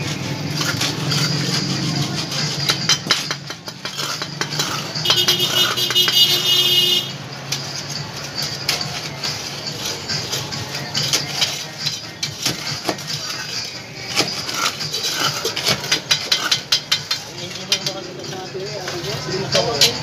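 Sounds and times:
shovel scraping gravel: 0:00.0 - 0:05.8, 0:07.6 - 0:17.2.

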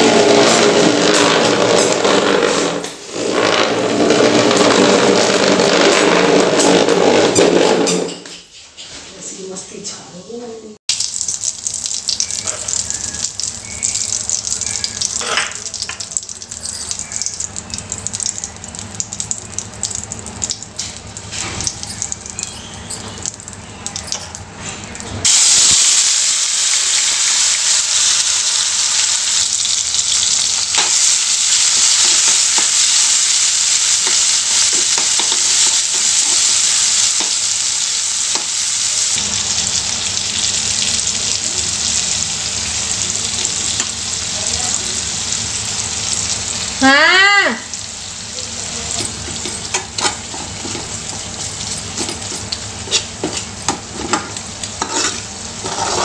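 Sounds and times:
tomatoes sizzling in oil: 0:00.0 - 0:08.0, 0:10.9 - 0:56.0
seeds popping in hot oil: 0:10.9 - 0:24.4, 0:25.2 - 0:47.8.

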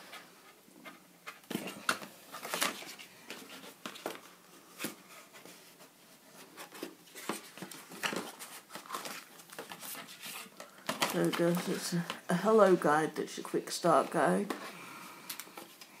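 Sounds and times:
cardboard packaging taps and rustles: 0:10.8 - 0:12.2.

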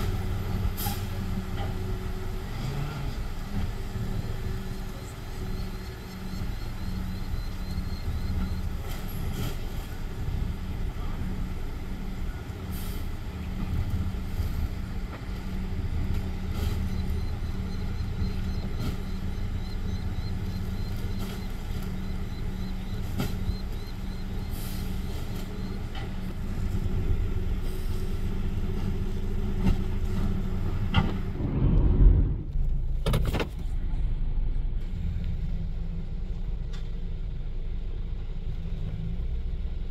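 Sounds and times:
garbage truck engine idling: 0:03.2 - 0:31.4.

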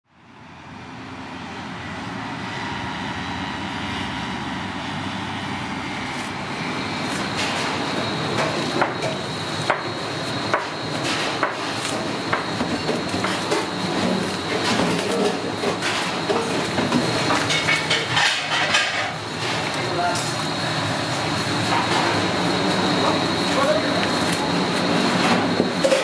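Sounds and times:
steady noisy background: 0:00.1 - 0:26.0
kitchen clicks and knocks: 0:10.5 - 0:20.4, 0:25.8 - 0:26.0.

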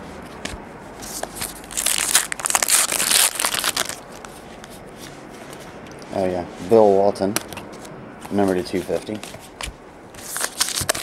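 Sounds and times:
foil wrapper tearing and crinkling: 0:01.4 - 0:04.3, 0:10.2 - 0:11.0.

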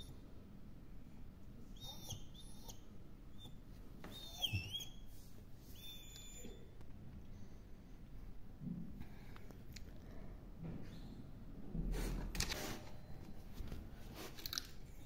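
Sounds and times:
small dog whimpering: 0:01.8 - 0:05.0.

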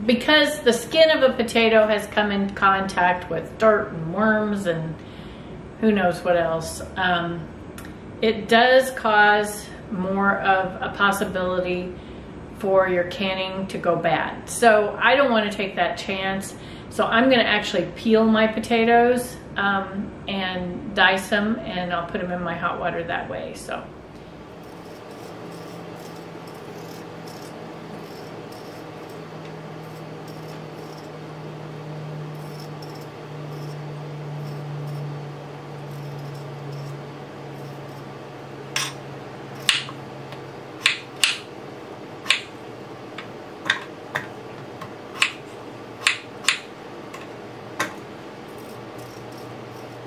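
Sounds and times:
low steady hum: 0:00.0 - 0:50.0
potato peeling scrapes: 0:24.6 - 0:31.2, 0:32.2 - 0:38.2, 0:48.5 - 0:50.0.

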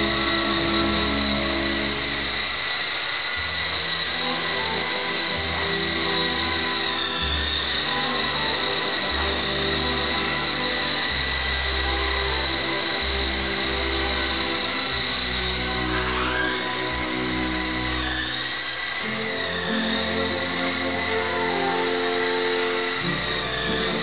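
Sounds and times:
background music: 0:00.0 - 0:02.4, 0:04.0 - 0:24.0
rc helicopter rotor whine: 0:00.0 - 0:24.0.

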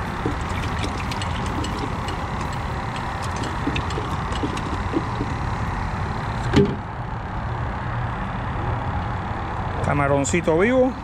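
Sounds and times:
hand rummaging in bait bucket: 0:00.0 - 0:05.4.

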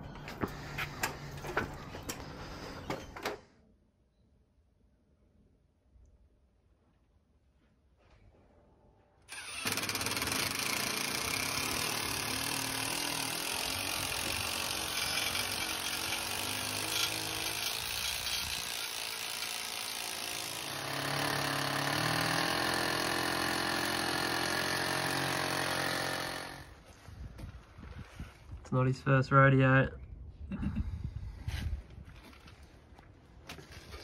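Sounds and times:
rotary hammer drilling into brick: 0:09.3 - 0:26.8.

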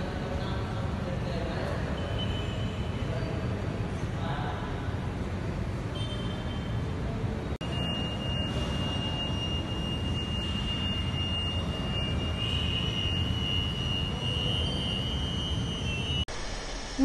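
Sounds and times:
metro station rushing noise: 0:07.6 - 0:17.0.

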